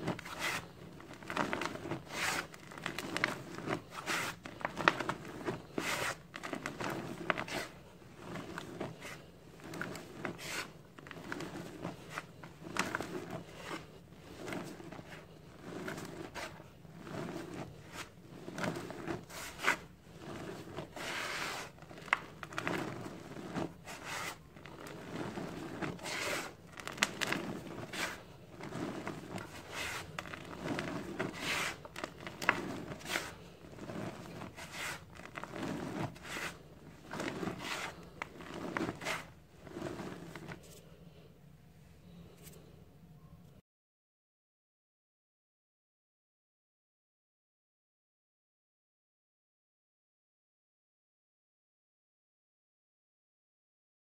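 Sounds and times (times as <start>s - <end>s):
hands raking dry cement powder: 0.0s - 41.0s.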